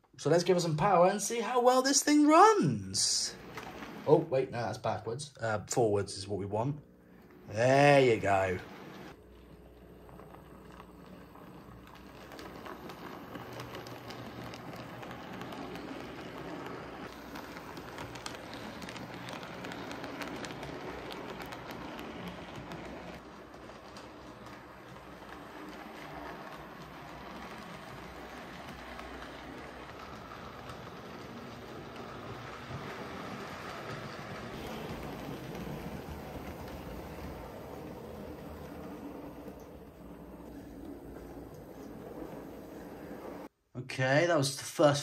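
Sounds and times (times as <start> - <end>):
model train rattling on rails: 7.5 - 43.5.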